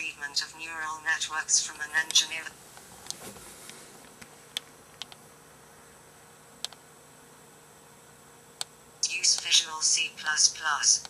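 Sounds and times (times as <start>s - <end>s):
quiet steady hiss: 0.0s - 11.0s
faint sharp clicks: 6.6s - 6.8s.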